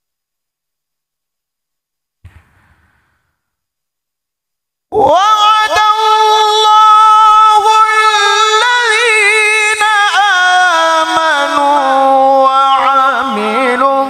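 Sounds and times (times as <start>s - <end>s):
man chanting a long melismatic note: 5.3s - 14.0s.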